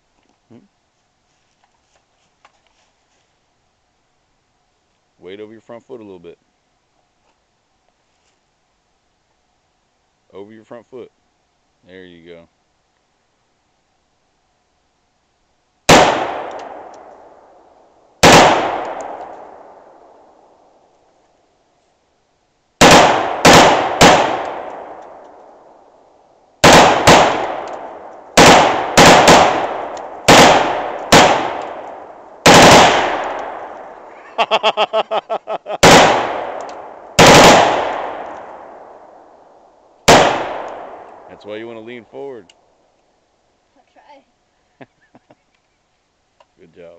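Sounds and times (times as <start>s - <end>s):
rifle shots ringing out: 15.9s - 17.5s, 18.2s - 20.3s, 22.8s - 25.7s, 26.6s - 34.1s, 35.8s - 39.4s, 40.0s - 41.3s.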